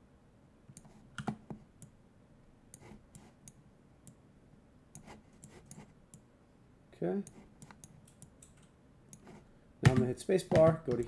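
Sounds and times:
computer mouse clicking: 0:00.7 - 0:02.0, 0:05.0 - 0:06.2, 0:07.2 - 0:09.4.

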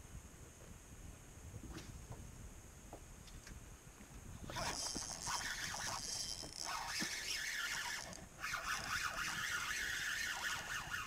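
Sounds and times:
spinning reel whirring: 0:04.5 - 0:11.0.

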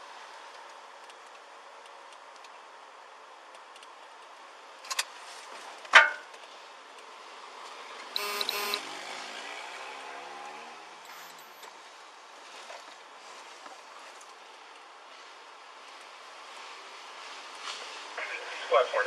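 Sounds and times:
car cabin road noise: 0:00.0 - 0:19.0
pulsing tone: 0:08.2 - 0:08.8.

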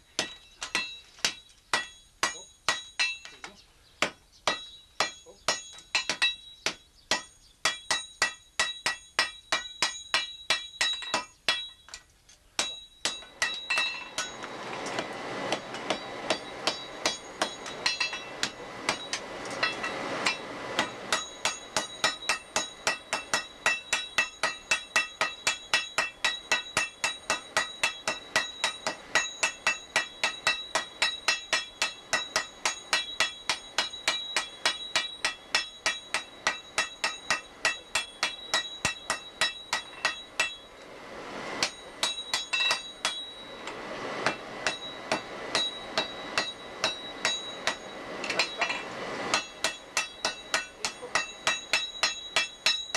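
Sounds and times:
hammers striking anvil: 0:00.0 - 0:40.9, 0:41.5 - 0:52.9
rushing noise: 0:14.0 - 0:21.8, 0:40.6 - 0:50.5.

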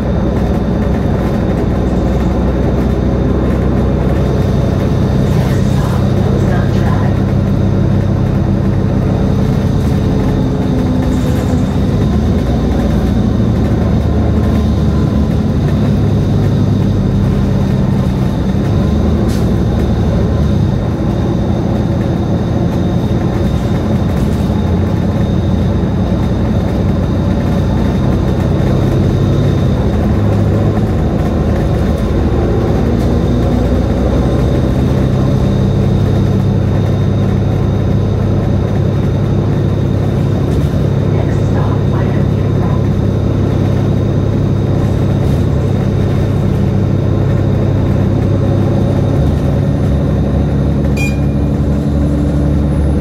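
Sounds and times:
bus engine running: 0:00.0 - 0:53.0
high whine: 0:00.0 - 0:53.0
tyre and road noise: 0:00.0 - 0:53.0.

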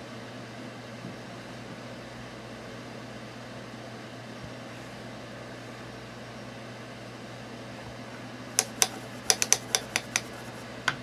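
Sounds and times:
low background hum: 0:00.0 - 0:11.0
makeup tools clicking and tapping: 0:08.6 - 0:11.0.

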